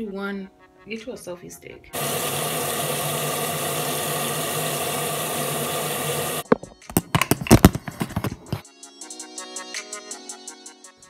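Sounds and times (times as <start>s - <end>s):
sink tap running: 2.0s - 8.6s.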